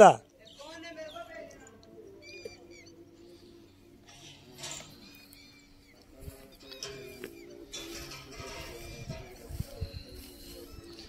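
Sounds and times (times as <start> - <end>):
background music with held notes: 1.2 - 11.0.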